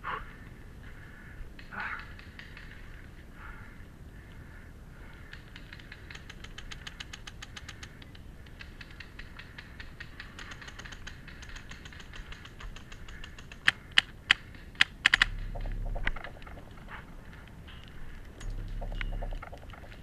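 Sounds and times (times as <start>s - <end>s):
low rumble: 15.1s - 20.0s.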